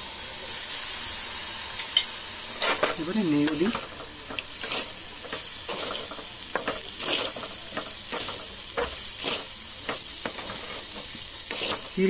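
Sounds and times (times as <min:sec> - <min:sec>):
frying sizzle: 0:00.0 - 0:12.0
metal spatula scraping pan: 0:02.6 - 0:12.0.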